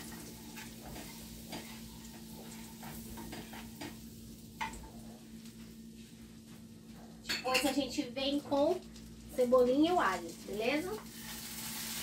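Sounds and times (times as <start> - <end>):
wooden spoon scraping a pan: 0.0 - 4.0
butter sizzling in a pan: 0.0 - 6.4, 7.6 - 12.0.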